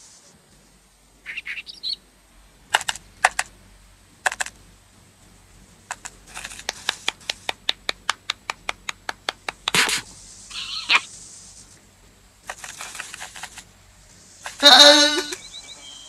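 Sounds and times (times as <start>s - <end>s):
fast run of clicks: 2.7s - 3.6s, 4.2s - 4.6s, 5.8s - 10.2s, 12.4s - 13.7s
rising squeaky glide: 14.6s - 16.0s.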